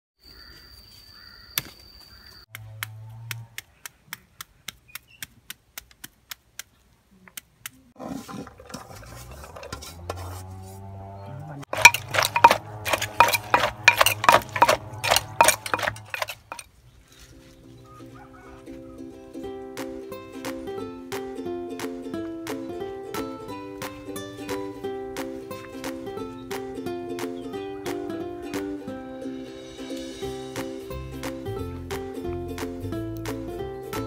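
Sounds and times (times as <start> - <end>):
wooden pestle pounding in mortar: 11.7 - 16.6.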